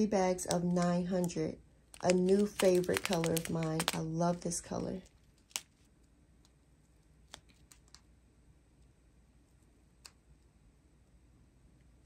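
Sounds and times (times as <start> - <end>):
plastic bags clicking: 1.9 - 4.6.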